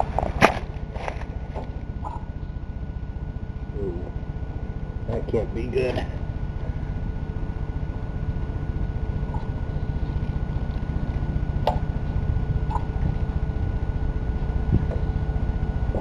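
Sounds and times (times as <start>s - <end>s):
steady low rumble: 0.0s - 16.0s
primer bulb squishing: 3.4s - 16.0s.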